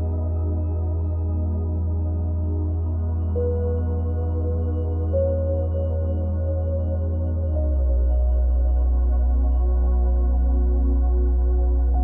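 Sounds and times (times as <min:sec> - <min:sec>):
ambient music with drone: 0:00.0 - 0:12.0.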